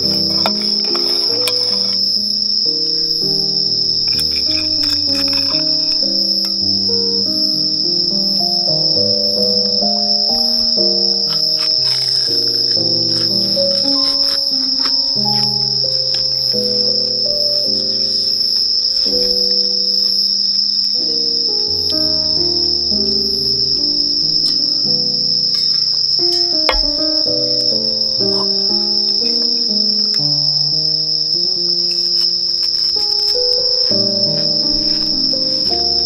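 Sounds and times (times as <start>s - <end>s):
insects trilling: 0.0s - 36.0s
soft low melody: 0.0s - 36.0s.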